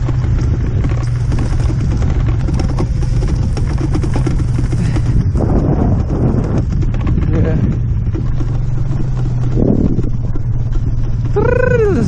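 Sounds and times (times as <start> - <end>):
scooter rattling and knocking: 0.0 - 12.0
wind rumble on microphone: 0.0 - 12.0.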